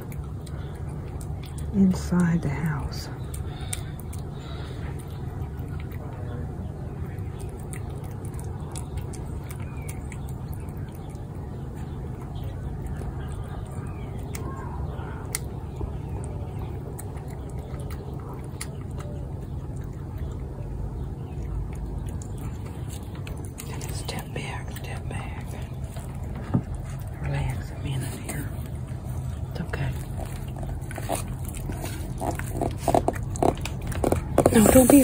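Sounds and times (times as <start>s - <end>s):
cat chewing and licking: 0.0s - 35.0s
steady low rumble: 0.0s - 35.0s.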